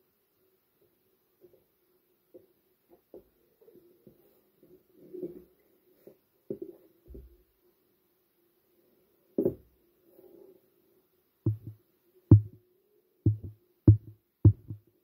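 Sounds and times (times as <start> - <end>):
faint steady hum: 0.0 - 15.0
dull double thuds: 11.5 - 12.6, 13.3 - 14.9.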